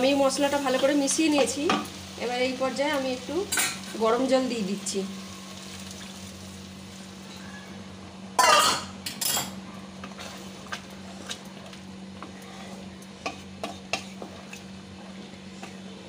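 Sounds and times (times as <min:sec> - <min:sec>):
steady low hum: 0:00.0 - 0:16.0
spatula scraping in a wok: 0:12.2 - 0:16.0.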